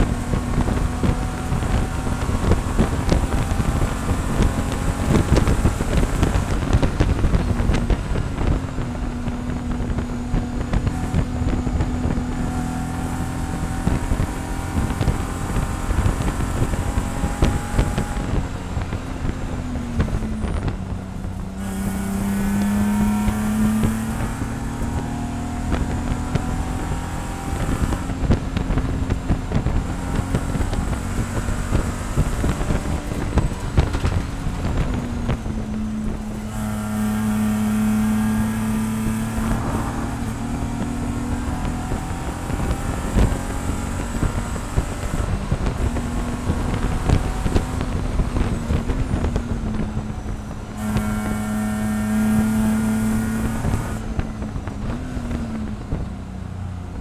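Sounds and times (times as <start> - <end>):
car engine running hard: 0.0 - 57.0
road noise: 0.0 - 57.0
wind noise: 0.0 - 57.0.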